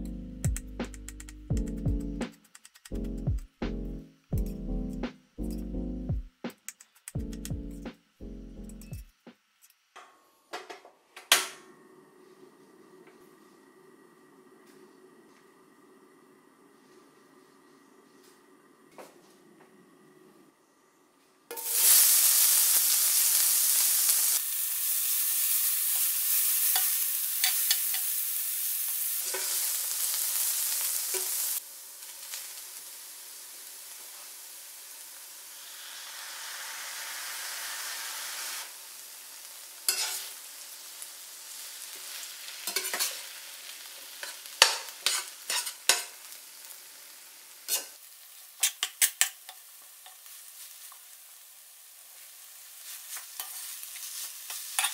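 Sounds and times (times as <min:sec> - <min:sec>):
food sizzling in frying pan: 0:21.5 - 0:54.9
metal spatula scraping pan: 0:39.9 - 0:40.4, 0:42.6 - 0:43.2, 0:44.2 - 0:46.1, 0:47.7 - 0:48.0, 0:48.6 - 0:49.6, 0:53.1 - 0:54.9.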